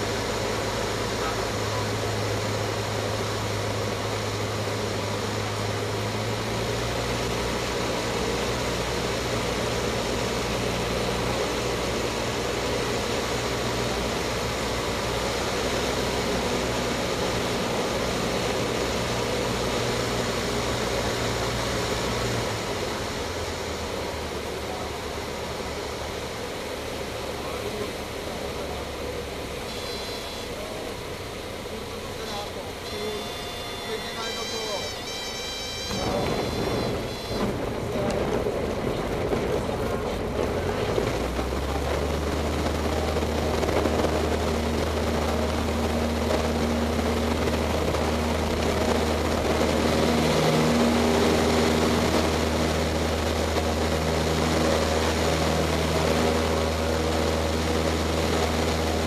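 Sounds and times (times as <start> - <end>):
faint high whine: 0.0 - 39.0
light aircraft engine and propeller: 0.0 - 59.0.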